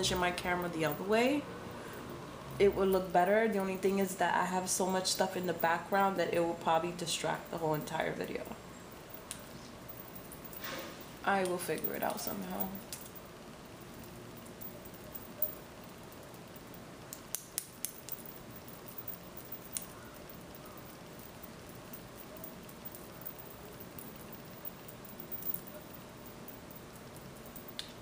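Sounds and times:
faint steady hiss: 0.0s - 28.0s.

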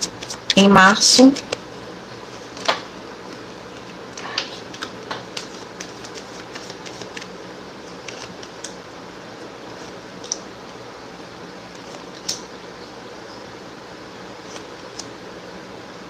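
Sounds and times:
steady background hum: 0.0s - 16.0s
cards clicking and tapping: 2.5s - 8.8s.

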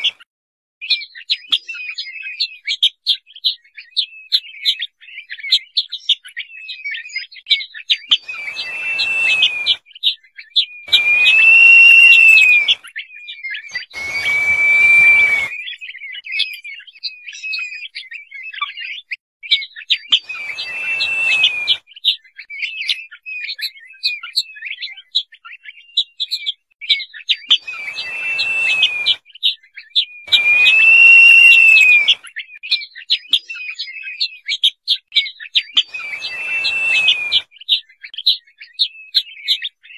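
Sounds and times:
bird whistling: 6.4s - 18.6s, 19.5s - 34.2s, 35.2s - 39.9s
short high chirps: 10.9s - 12.8s, 30.3s - 32.2s.

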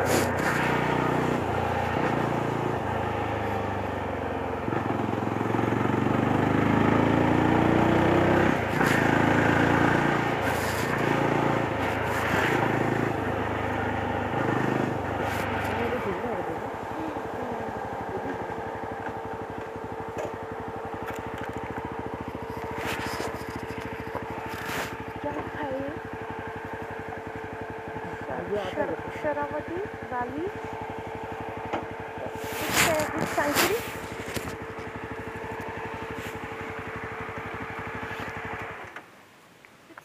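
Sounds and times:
motorcycle engine running low: 0.0s - 39.1s
scraping rustles: 22.3s - 25.2s, 32.3s - 35.0s, 36.0s - 36.5s.

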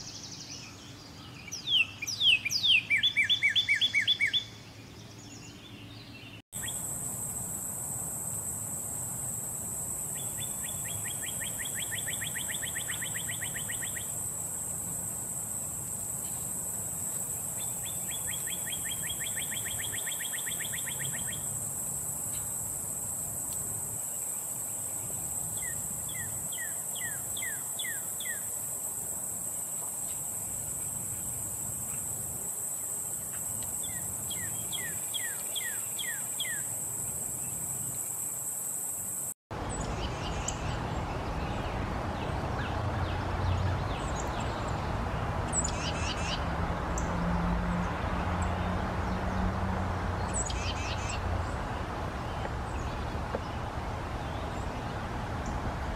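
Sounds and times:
bird singing trills and whistles: 0.0s - 4.6s, 10.2s - 14.1s, 17.6s - 21.4s
high-pitched hiss: 6.6s - 40.8s.

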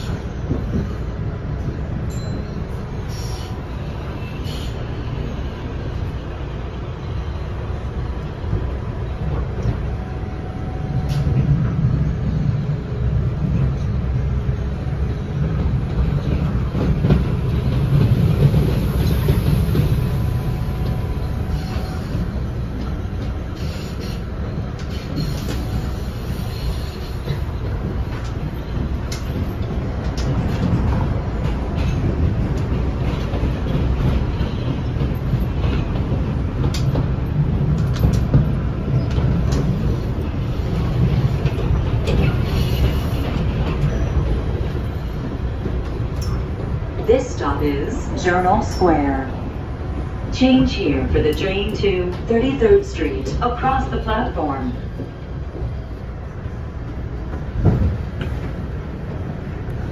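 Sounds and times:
low rumble of train wheels: 0.0s - 59.9s
wheels clicking on rails: 14.9s - 59.9s.

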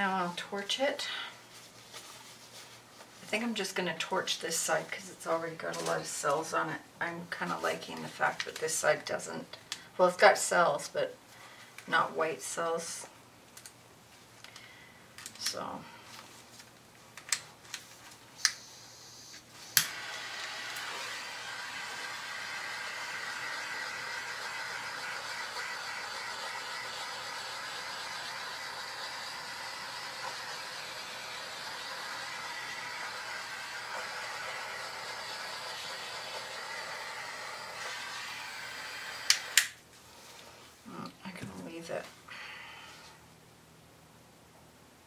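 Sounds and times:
torch flame hissing: 19.6s - 39.8s
torch igniter clicking: 19.8s - 20.1s, 39.2s - 39.8s.

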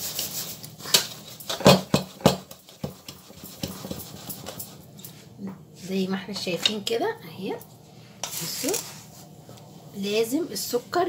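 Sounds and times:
metal pot knocking and scraping on stone: 1.5s - 4.7s.

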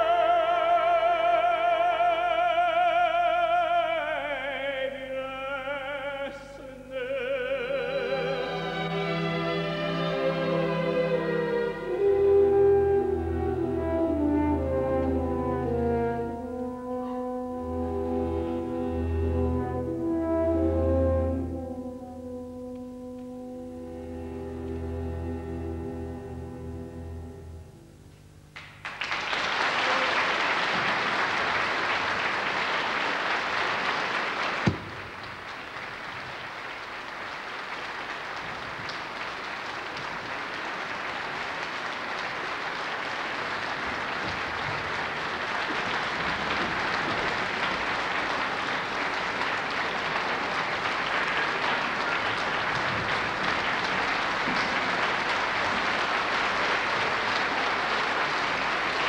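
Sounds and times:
audience applauding: 28.6s - 59.0s.

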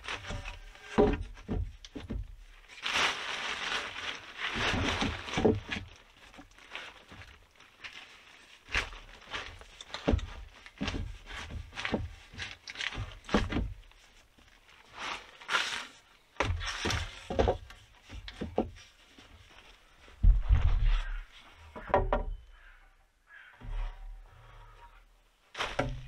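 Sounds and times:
wooden poles knocking: 0.2s - 2.4s, 9.9s - 13.9s, 16.4s - 18.9s, 20.2s - 22.8s, 25.6s - 26.0s.

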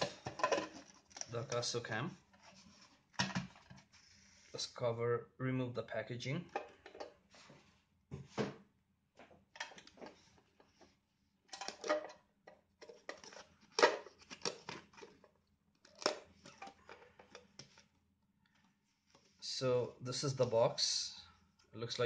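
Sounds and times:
cardboard and plastic packaging rustling: 12.8s - 17.9s.

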